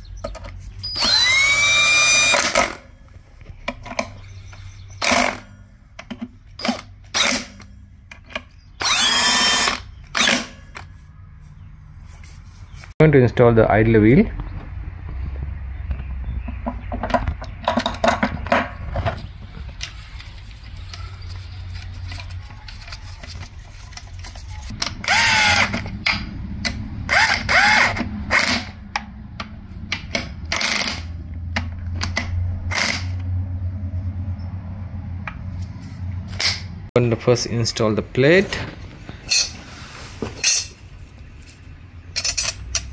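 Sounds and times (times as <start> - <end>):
power driver whirring: 0.8 - 2.8, 8.8 - 10.5, 24.8 - 26.0, 26.6 - 28.8
metal parts clinking: 39.2 - 39.6, 40.4 - 42.9.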